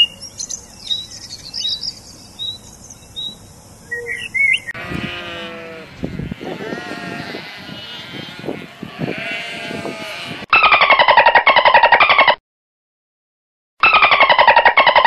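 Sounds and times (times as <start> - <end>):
sparrow chirping: 0.0 - 4.8
sheep bleating: 4.7 - 10.5.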